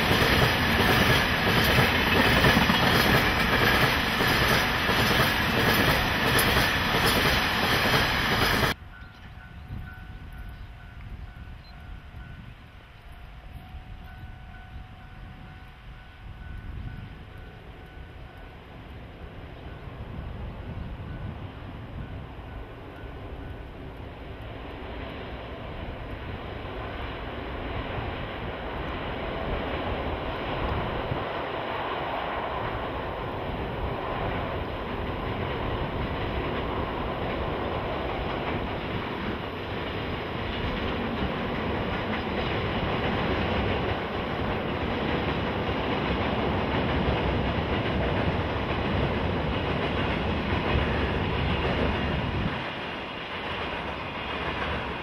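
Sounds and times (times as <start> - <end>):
freight train running on rails: 0.0 - 55.0.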